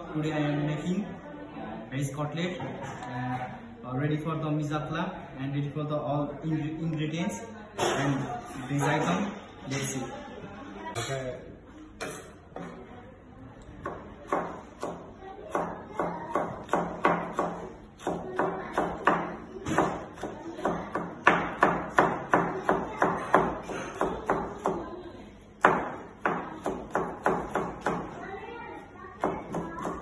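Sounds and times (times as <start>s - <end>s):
knife chopping on cutting board: 13.8s - 24.8s, 25.6s - 28.1s.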